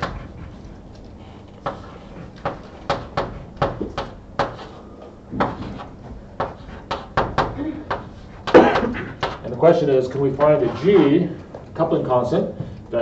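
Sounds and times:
chalk tapping on blackboard: 1.6 - 4.8, 5.4 - 9.4.

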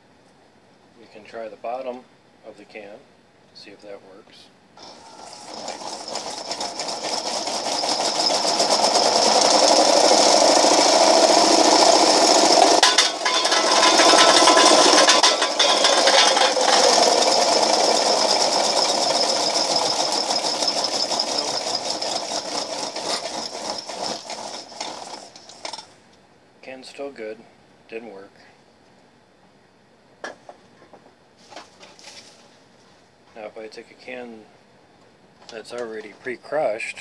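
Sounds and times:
can clattering against wheels: 4.8 - 25.9
can crusher whirring rattle: 4.8 - 25.9.

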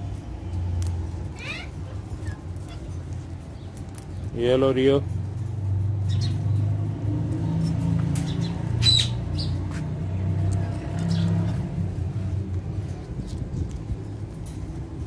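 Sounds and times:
parakeet chirps and clicks: 6.0 - 6.8.

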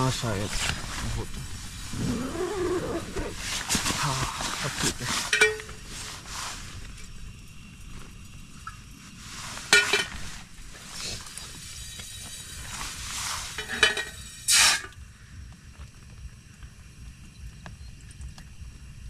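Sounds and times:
gas camping stove burning: 0.0 - 19.0
water pouring into pot: 3.8 - 15.0
cookware clinks and crackles: 5.2 - 5.8, 9.7 - 10.2, 13.5 - 14.2.

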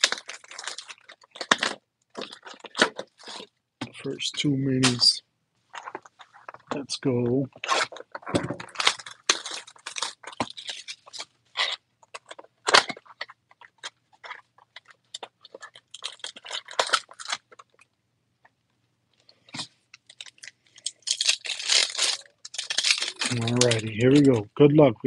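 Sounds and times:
foil packs crinkling: 0.0 - 3.5, 7.6 - 17.8, 19.6 - 24.4.

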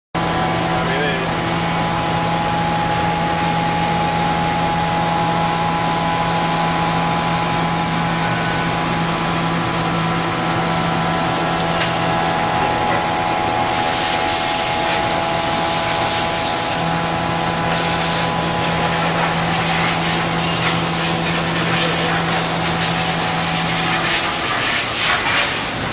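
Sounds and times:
machine humming: 0.2 - 25.9
coolant spray hissing: 8.8 - 25.9.

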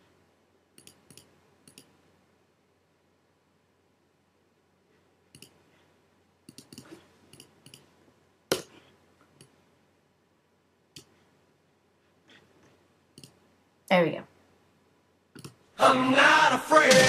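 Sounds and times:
keyboard and mouse clicks: 0.8 - 2.0, 5.3 - 5.6, 6.4 - 7.9, 8.5 - 9.6, 12.6 - 13.4, 15.3 - 15.6.

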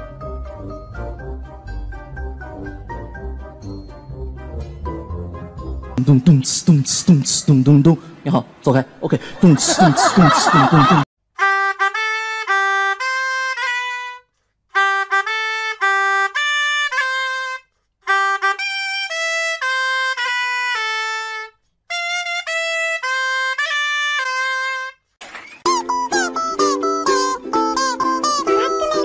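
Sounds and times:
wind instrument melody: 11.4 - 25.0, 25.7 - 29.0.

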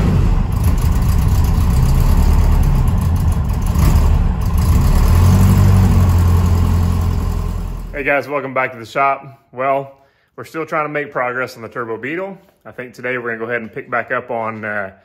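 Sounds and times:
vehicle engine rumbling: 0.0 - 8.1.

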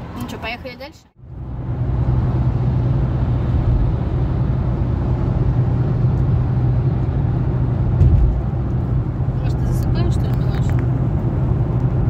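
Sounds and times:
car road and engine rumble: 0.0 - 12.0.

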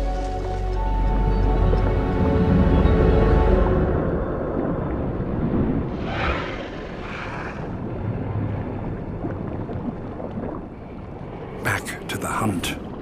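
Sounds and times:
shark swimming past whoosh: 5.9 - 7.8.

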